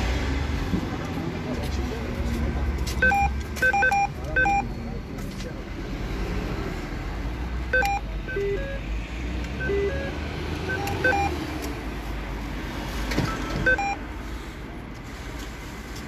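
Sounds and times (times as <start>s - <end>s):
street traffic rumbling: 0.0s - 16.0s
short beeping tones: 3.0s - 4.7s, 7.7s - 8.8s, 9.6s - 11.4s, 13.3s - 14.0s.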